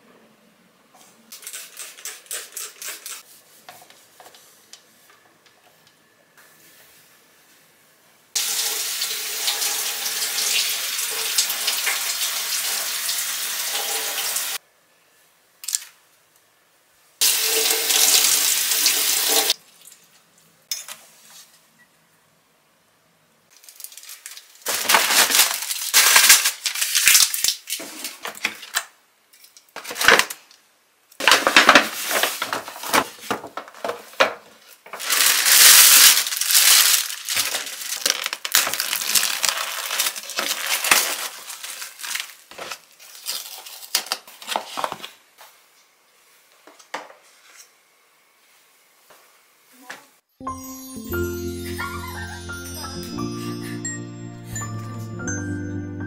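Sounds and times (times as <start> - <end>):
tap water running into sink: 17.2 - 19.5
plastic bag crinkling: 23.5 - 27.8, 34.9 - 45.1.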